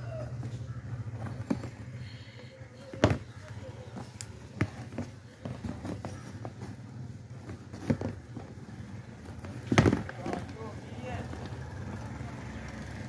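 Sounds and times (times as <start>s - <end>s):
shoelace tapping and rustling: 2.8s - 11.7s.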